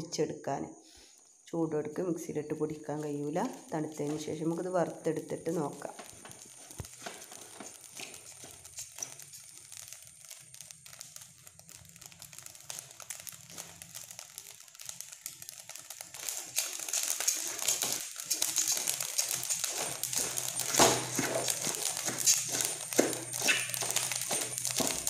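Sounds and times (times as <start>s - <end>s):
rice crackling and popping in pot: 2.5s - 25.0s.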